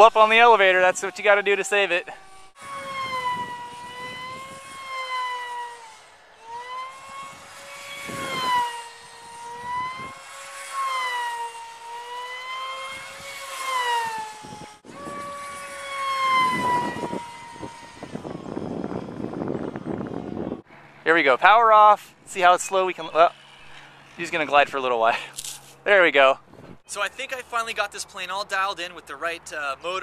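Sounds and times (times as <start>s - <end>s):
electric motor whining: 0.0s - 20.7s, 22.4s - 24.6s
wind on microphone: 2.3s - 5.0s, 6.8s - 10.2s, 12.9s - 20.6s.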